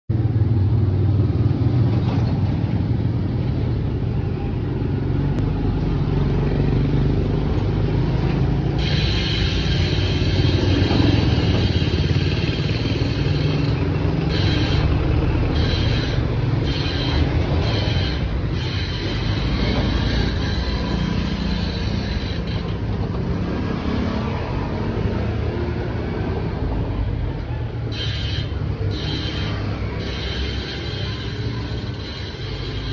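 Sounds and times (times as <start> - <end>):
bicycle hub ratcheting buzz: 8.6 - 23.7, 27.8 - 32.9.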